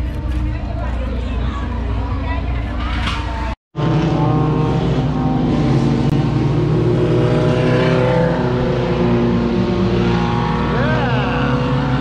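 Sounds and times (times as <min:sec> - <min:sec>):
race car engines: 0:00.0 - 0:12.0.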